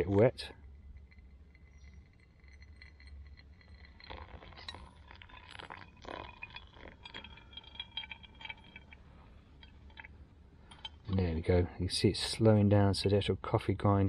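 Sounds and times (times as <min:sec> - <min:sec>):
small clinks: 0:00.0 - 0:11.2
water trickling onto coffee grounds: 0:00.0 - 0:11.5.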